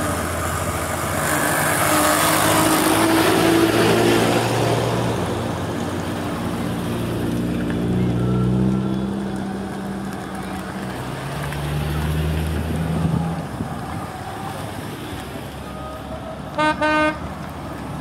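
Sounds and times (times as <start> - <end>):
cars driving slowly past: 0.0 - 18.0
car horn toots: 16.6 - 17.2.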